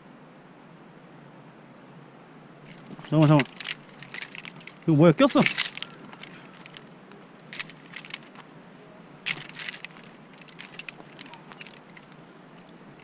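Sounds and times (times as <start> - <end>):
metal climbing gear clinking: 2.7 - 8.5, 9.2 - 13.0.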